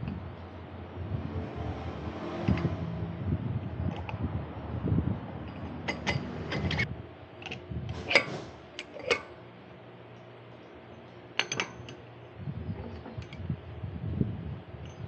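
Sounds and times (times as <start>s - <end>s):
metal tools clinking: 5.4s - 6.9s.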